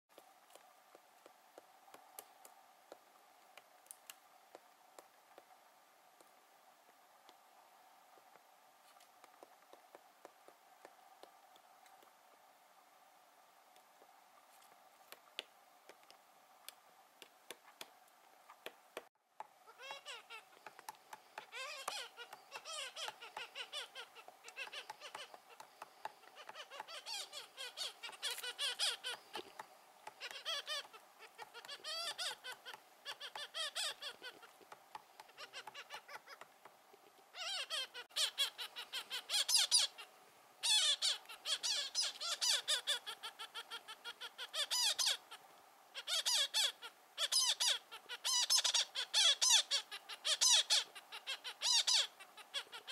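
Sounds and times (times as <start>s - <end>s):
faint taps: 8.1s - 12.1s
woodpeckers calling: 19.7s - 36.8s, 37.4s - 45.4s, 46.0s - 52.9s.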